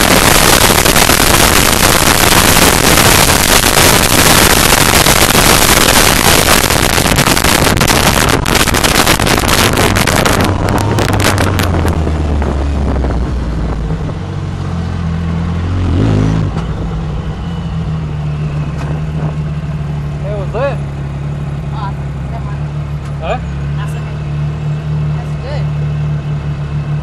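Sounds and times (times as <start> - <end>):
rushing noise with rattles: 0.0 - 14.3
off-road vehicle engine: 0.0 - 27.0.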